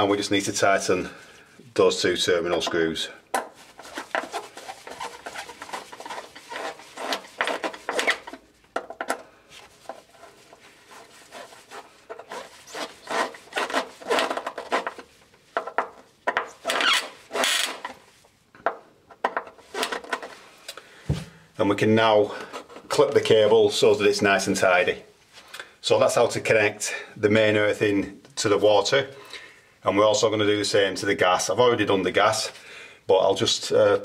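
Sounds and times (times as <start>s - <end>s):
screwdriver scraping in screw slots: 3.8s - 8.4s, 10.9s - 18.0s, 19.5s - 20.4s.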